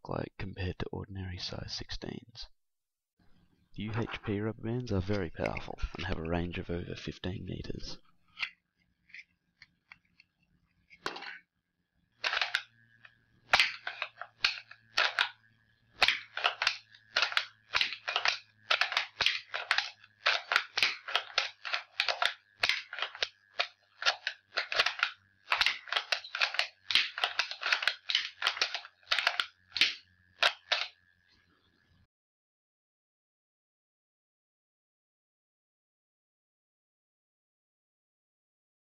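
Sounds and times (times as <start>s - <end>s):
wooden clacks and snaps: 16.0s - 31.0s.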